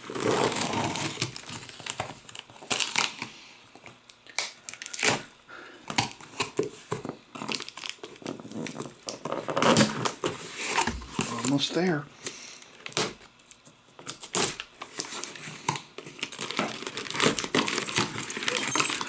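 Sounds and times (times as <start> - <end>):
cardboard crinkling and scraping: 0.0 - 3.2, 6.0 - 11.9, 12.8 - 19.0
tape tearing: 0.0 - 3.3, 4.3 - 5.3, 5.9 - 11.6, 12.8 - 19.0.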